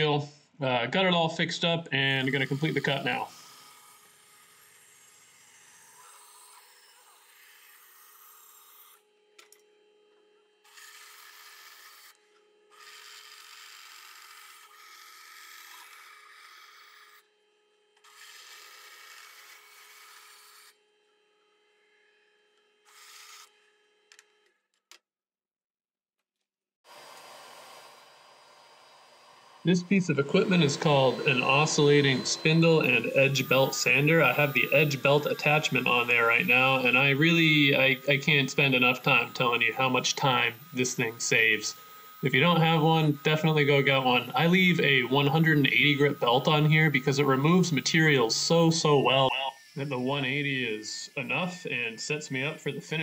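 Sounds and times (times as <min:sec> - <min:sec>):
bandsaw motor hum: 0:02.0 - 0:24.6, 0:26.8 - 0:53.0
saw blade hissing through wood: 0:26.9 - 0:48.5.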